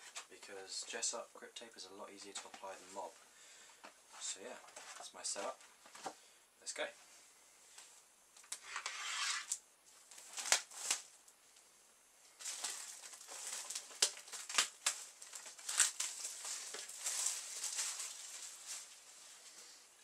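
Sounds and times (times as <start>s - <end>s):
plastic shrink wrap crinkling: 9.9s - 11.4s, 12.4s - 19.8s.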